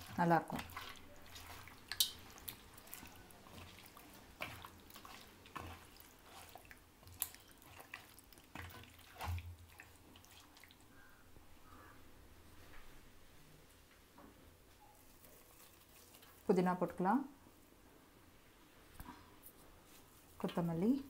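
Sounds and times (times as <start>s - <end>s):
wet squelches of marinade: 0.0s - 11.8s, 14.9s - 16.8s.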